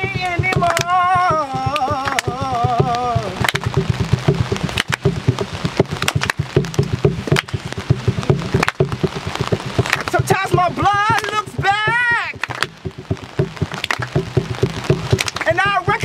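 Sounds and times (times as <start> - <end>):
rain pattering on an umbrella: 0.0 - 16.0.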